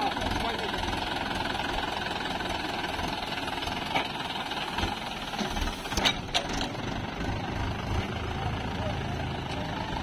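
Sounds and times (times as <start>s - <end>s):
diesel tractor engine running: 0.0s - 10.0s.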